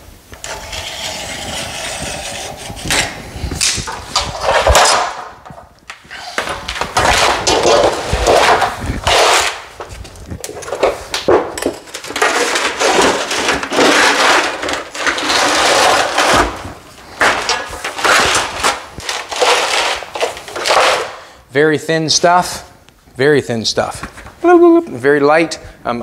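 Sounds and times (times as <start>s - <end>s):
aluminum sheet scraping on concrete: 0.0s - 21.2s.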